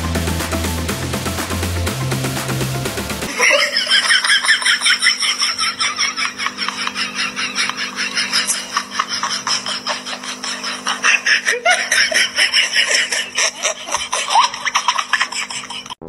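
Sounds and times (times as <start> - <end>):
steady low hum: 2.9 - 16.0
person laughing breathily: 3.3 - 16.0.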